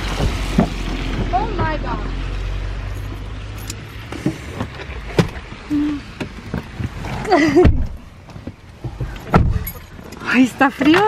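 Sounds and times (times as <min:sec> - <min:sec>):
knocks and bumps in truck cab: 0:06.4 - 0:09.7.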